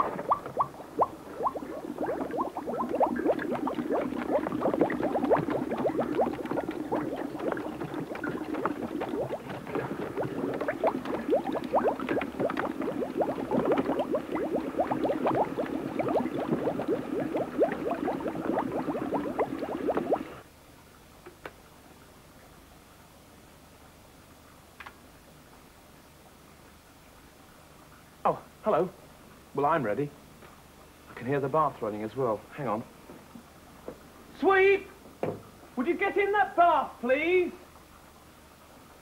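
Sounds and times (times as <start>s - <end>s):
bubbles blipping and popping: 0.0s - 20.4s.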